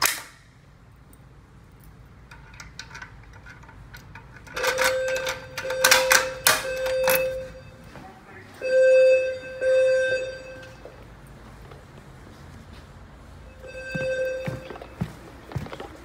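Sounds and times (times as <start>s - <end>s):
fire alarm pull station snap: 0.0s - 0.4s, 2.3s - 7.5s
key clicking in lock: 1.8s - 7.3s
metallic clanks and rattles: 2.2s - 7.3s
steady alarm tone: 4.5s - 11.3s, 13.3s - 15.6s.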